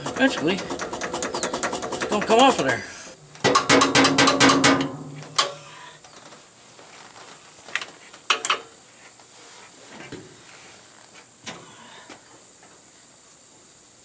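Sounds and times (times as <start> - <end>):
hammer tapping metal: 3.4 - 5.6.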